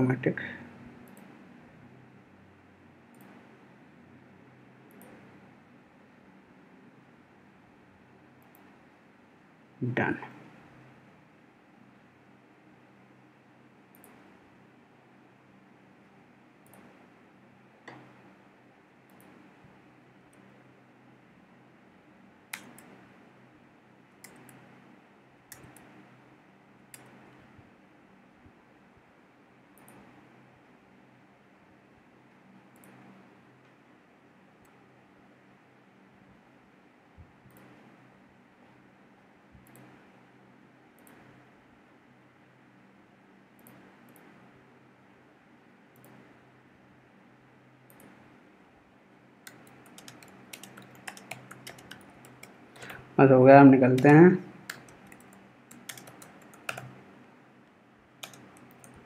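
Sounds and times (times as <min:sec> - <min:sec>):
low steady hum: 0:00.0 - 0:59.0
keyboard and mouse clicks: 0:01.0 - 0:01.4, 0:03.1 - 0:03.4, 0:04.9 - 0:05.3, 0:13.9 - 0:14.3, 0:16.6 - 0:17.0, 0:17.8 - 0:18.3, 0:19.1 - 0:19.5, 0:22.5 - 0:23.0, 0:24.2 - 0:24.7, 0:25.5 - 0:26.0, 0:26.9 - 0:27.5, 0:29.8 - 0:30.2, 0:32.7 - 0:33.8, 0:37.4 - 0:37.9, 0:39.5 - 0:40.0, 0:41.0 - 0:41.4, 0:43.6 - 0:44.3, 0:45.9 - 0:46.3, 0:47.9 - 0:48.2, 0:49.4 - 0:53.1, 0:53.9 - 0:59.0.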